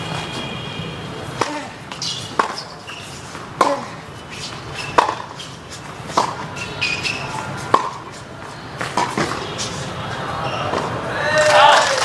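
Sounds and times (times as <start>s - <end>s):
tennis ball hit by racquets: 1.3s - 8.2s, 8.8s - 9.9s.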